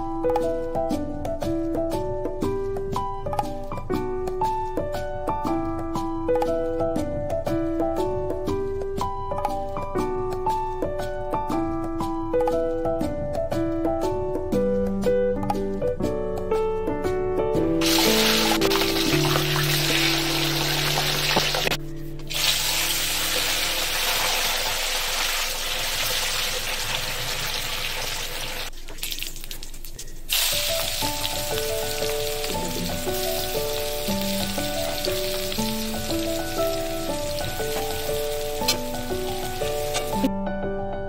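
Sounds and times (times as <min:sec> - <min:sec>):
stepped melody music: 0:00.0 - 0:23.0, 0:30.3 - 0:40.5
oil sizzling in frying pan: 0:17.8 - 0:29.6, 0:30.3 - 0:40.3.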